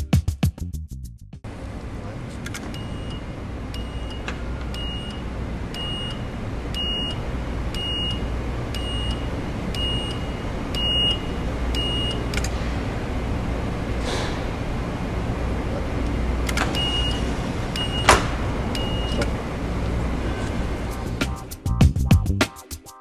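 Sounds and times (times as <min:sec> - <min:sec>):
steady low hum: 0:01.4 - 0:22.2
click: 0:11.7 - 0:12.6, 0:16.0 - 0:16.8.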